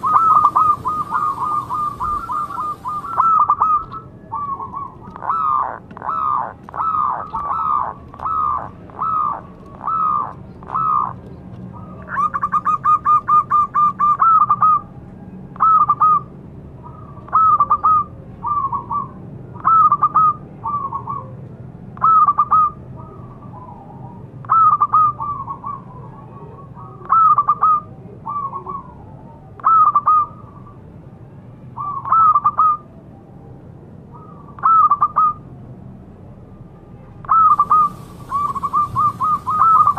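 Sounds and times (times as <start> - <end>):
dove cooing: 0.0 - 11.2, 15.6 - 21.4, 22.0 - 30.7, 34.2 - 35.4, 37.3 - 39.9
dove rattling trill: 0.0 - 11.2, 37.3 - 39.9.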